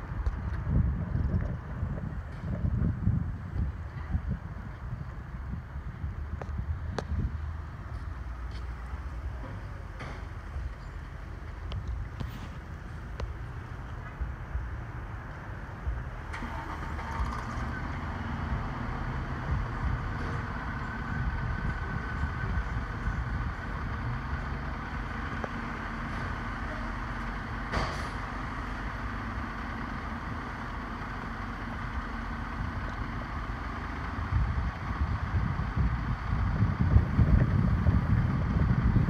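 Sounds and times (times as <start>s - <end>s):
diesel engine idling: 0.0s - 39.0s.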